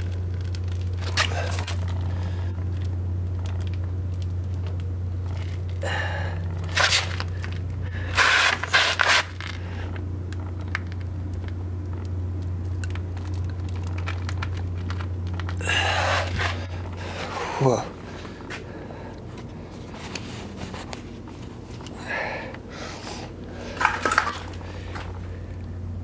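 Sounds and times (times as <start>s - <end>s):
scraping and crunching: 0.0s - 22.0s, 22.6s - 25.7s
steady low hum: 0.0s - 26.0s.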